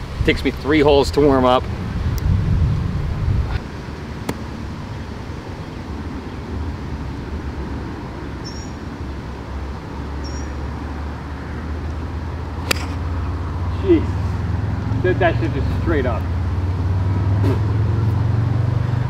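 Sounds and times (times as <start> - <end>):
wind rumbling on microphone: 0.0 - 10.0
sharp click: 12.7 - 13.0.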